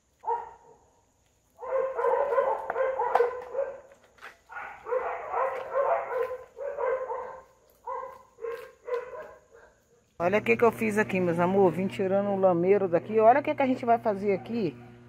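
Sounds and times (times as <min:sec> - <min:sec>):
dog barking: 0:00.2 - 0:00.9, 0:01.6 - 0:10.1, 0:14.3 - 0:15.0.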